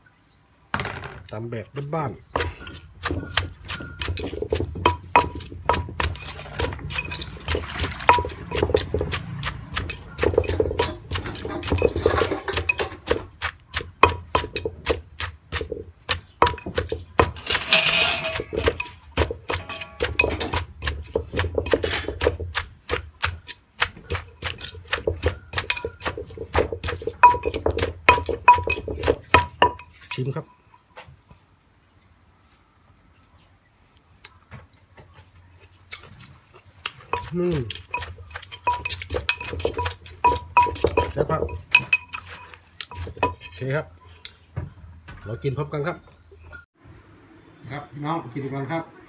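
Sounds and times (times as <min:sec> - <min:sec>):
pestle pounding in clay mortar: 0:02.2 - 0:30.3, 0:36.8 - 0:43.6
spoon scraping: 0:02.4 - 0:15.7, 0:16.4 - 0:30.3, 0:36.8 - 0:43.7.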